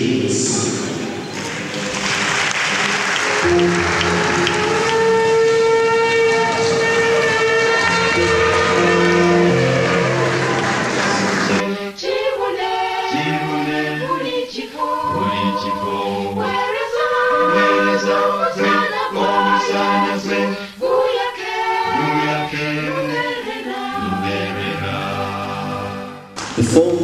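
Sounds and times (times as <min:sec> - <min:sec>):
choir singing chords: 0:00.0 - 0:26.4.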